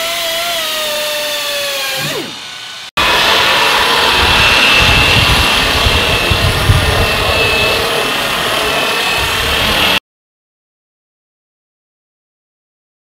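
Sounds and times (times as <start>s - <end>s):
electric polisher motor whine: 0.0s - 10.0s.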